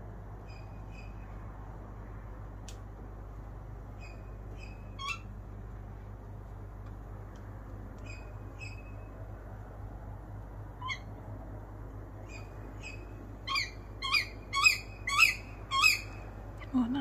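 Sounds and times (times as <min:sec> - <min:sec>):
steady low hum: 0:00.0 - 0:17.0
owls calling: 0:04.0 - 0:05.3, 0:10.8 - 0:11.1, 0:12.3 - 0:16.3.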